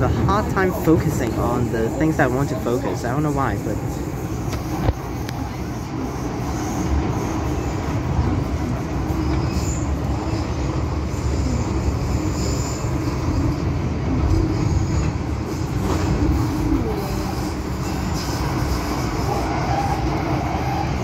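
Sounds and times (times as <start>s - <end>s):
train wheels rumbling: 0.0s - 21.0s
high wheel squeals: 9.1s - 11.4s.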